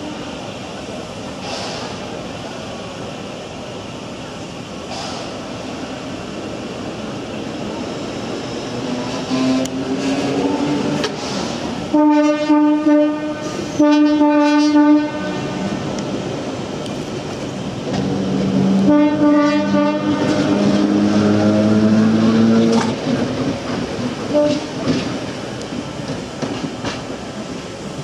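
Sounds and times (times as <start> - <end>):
train wheels clattering on track: 0.0 - 3.0, 4.2 - 28.0
train horn: 9.2 - 11.0, 11.9 - 15.7, 18.6 - 22.8, 24.3 - 24.8.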